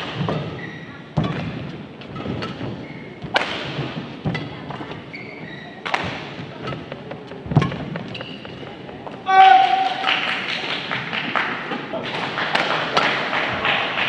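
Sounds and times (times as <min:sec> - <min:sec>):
racket hitting shuttlecock: 0:00.0 - 0:08.5
shoe squeaks: 0:00.0 - 0:09.0.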